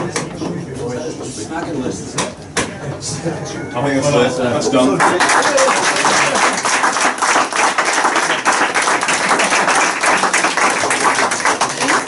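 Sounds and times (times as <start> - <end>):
crowd applauding: 4.8 - 12.0.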